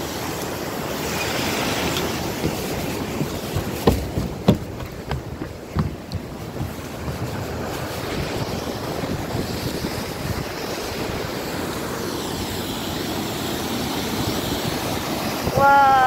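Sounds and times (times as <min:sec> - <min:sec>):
waterfall rushing over spillway: 0:00.0 - 0:16.0
footsteps on wooden boardwalk: 0:01.5 - 0:10.4.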